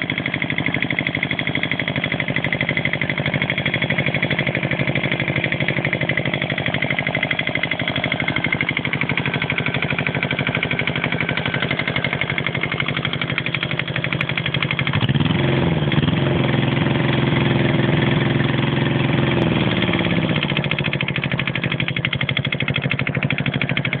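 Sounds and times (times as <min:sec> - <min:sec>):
diesel engine knocking: 0:00.0 - 0:24.0.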